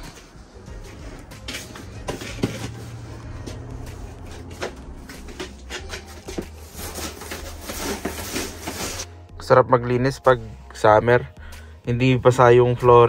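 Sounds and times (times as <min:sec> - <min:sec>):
broom sweeping wooden floor: 0:00.2 - 0:09.1.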